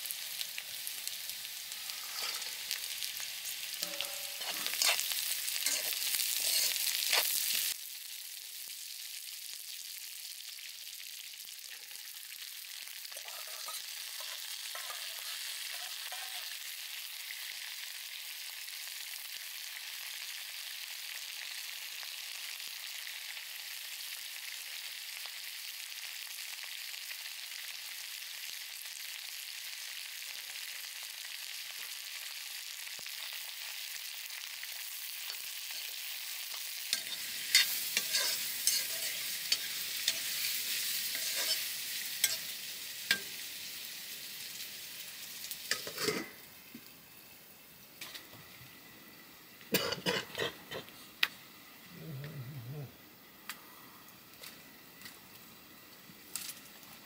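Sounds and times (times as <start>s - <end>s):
food sizzling in a pan: 0.0s - 57.0s
utensil scraping a pan: 1.9s - 3.0s, 3.8s - 7.4s, 13.1s - 16.4s, 37.0s - 42.5s.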